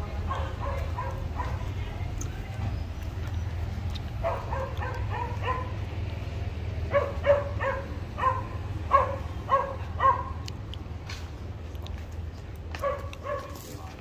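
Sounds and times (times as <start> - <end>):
dog barking: 0.3 - 1.7, 4.2 - 5.8, 6.9 - 10.5, 12.8 - 13.7.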